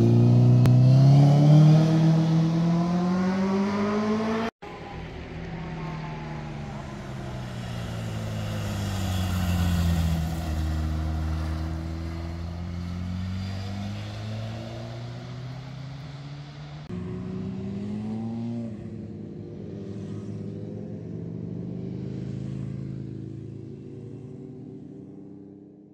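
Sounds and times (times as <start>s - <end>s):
engine revving: 0.0s - 4.7s, 5.8s - 18.9s
motorcycle engine passing: 0.0s - 25.8s.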